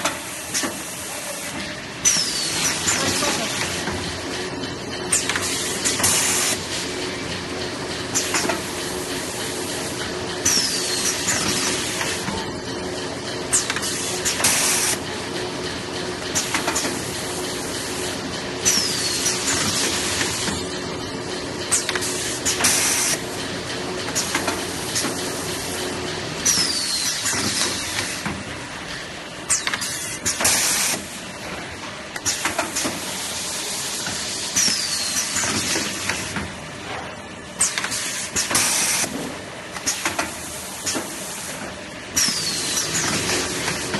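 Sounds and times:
steady machine hum: 1.7 - 26.5.

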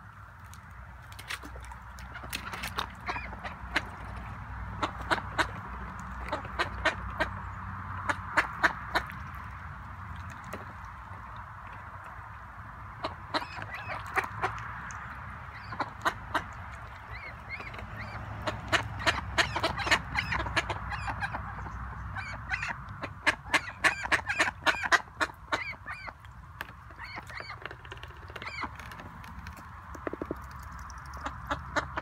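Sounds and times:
ducks quacking: 2.0 - 9.5, 13.0 - 14.7, 15.5 - 26.2, 31.1 - 32.0.

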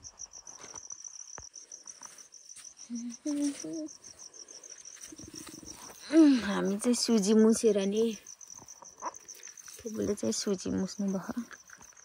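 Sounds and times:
cricket chirping: 0.0 - 12.0
faint voice: 2.9 - 4.0.

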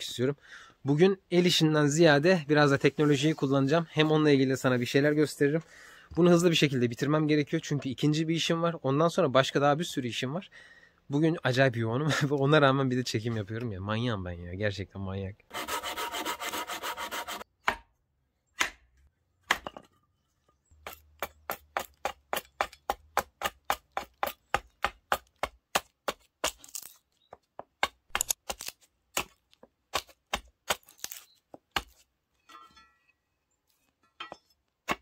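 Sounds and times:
chopping strikes into wood: 17.6 - 17.9, 18.6 - 19.8, 20.8 - 26.6, 27.8 - 32.0.

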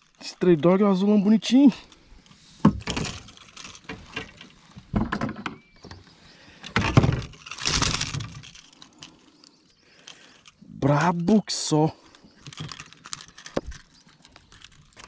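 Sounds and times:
clattering and knocking of tools: 2.6 - 8.8, 10.0 - 15.0.

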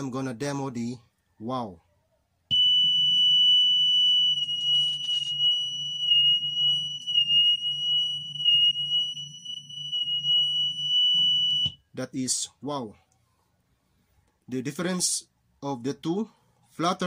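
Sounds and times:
wavering test tone from record: 2.5 - 11.8.

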